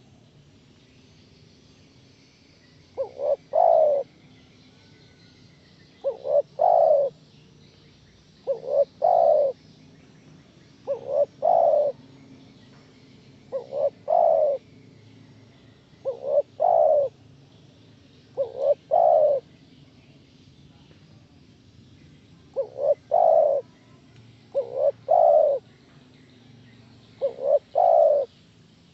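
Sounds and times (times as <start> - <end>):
dove cooing: 2.9 - 4.1, 6.0 - 7.2, 8.4 - 9.6, 10.8 - 12.1, 13.5 - 14.6, 16.0 - 17.2, 18.4 - 19.5, 22.5 - 23.7, 24.5 - 25.6, 27.2 - 28.3.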